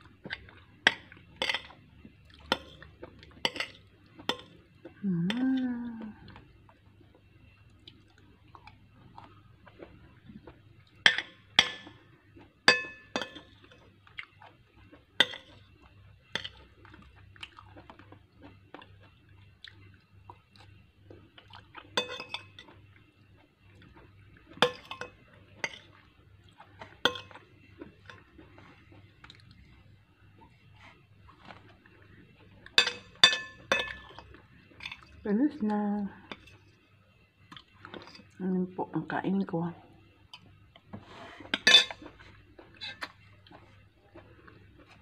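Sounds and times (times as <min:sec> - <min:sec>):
chewing and mouth sounds: 0:05.6 - 0:11.0, 0:13.5 - 0:22.0, 0:25.7 - 0:29.8, 0:42.0 - 0:45.0
spoon clinking against glass bowl: 0:12.7 - 0:13.5, 0:32.8 - 0:34.2, 0:41.6 - 0:42.0.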